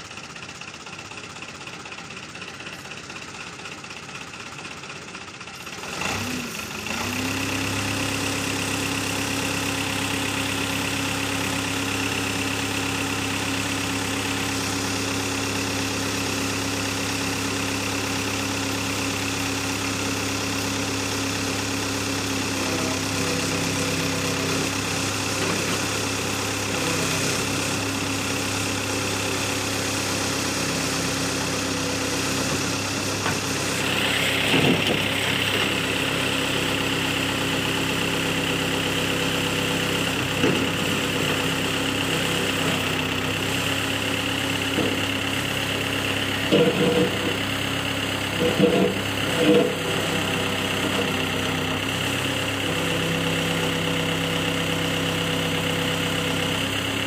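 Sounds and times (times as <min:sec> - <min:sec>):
backhoe engine idling: 0:00.0 - 0:57.0
engine whine under load: 0:21.1 - 0:56.9.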